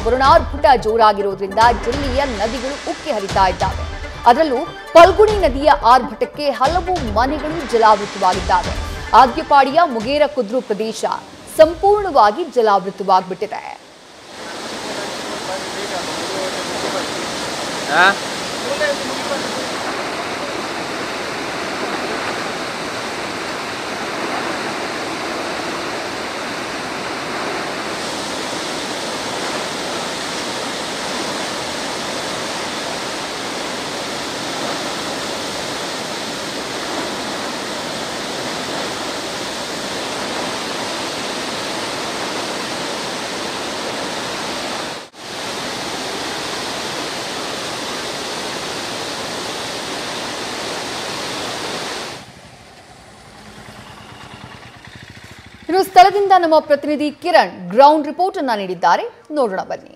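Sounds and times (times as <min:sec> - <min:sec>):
river rushing over a weir: 0:07.8 - 0:55.6.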